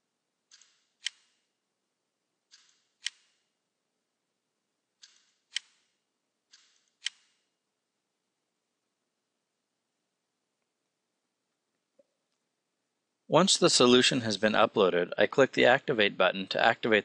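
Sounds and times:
computer mouse clicks: 0.5 - 1.4, 2.5 - 3.4, 5.0 - 5.9, 6.5 - 7.4.

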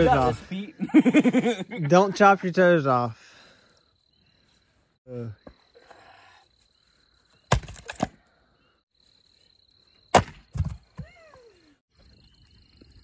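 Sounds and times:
axe chopping firewood: 7.5 - 8.2, 10.1 - 11.1.

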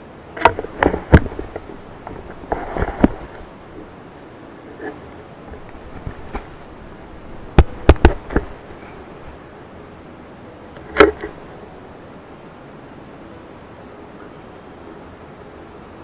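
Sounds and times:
steady low hiss: 0.0 - 16.0
sharp hard knocks and clicks: 7.5 - 8.5.

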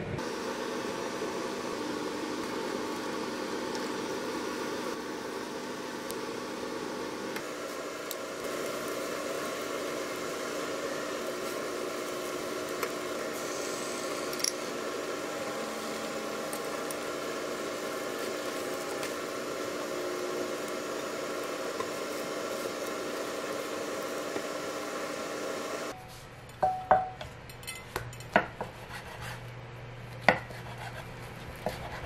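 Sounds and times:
egg sizzling in frying pan: 0.2 - 26.0.

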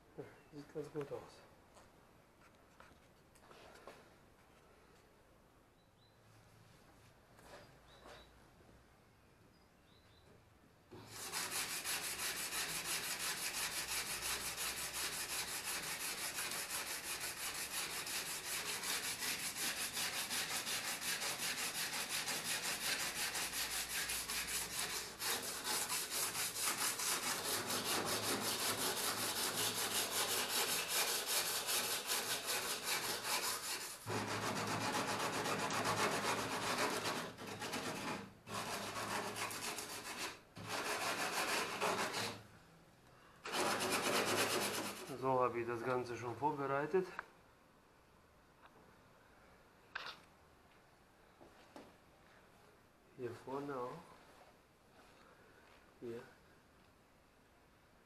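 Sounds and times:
sandpaper rubbing on metal: 11.0 - 42.4, 43.5 - 45.3.

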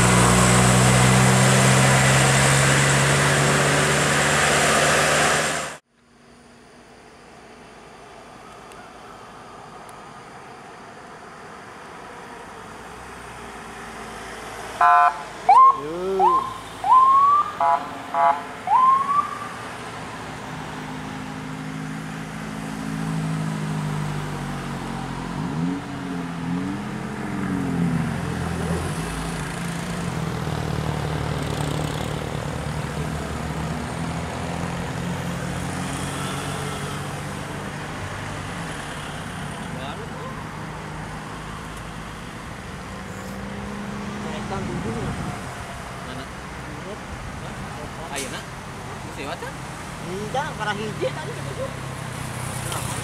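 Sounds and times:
convoy engines humming: 0.0 - 53.0
road noise: 0.0 - 53.0
police siren whoops: 15.0 - 19.6.

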